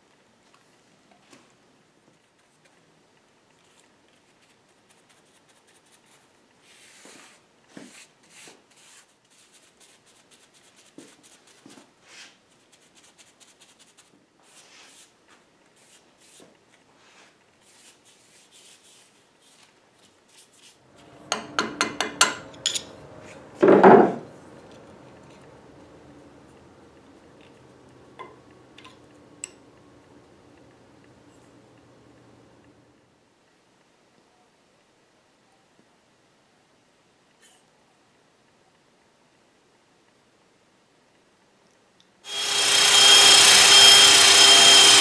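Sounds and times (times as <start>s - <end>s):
loud knock: 21.3s - 22.4s, 23.6s - 24.3s
sharp metallic clinks: 21.3s - 23.0s.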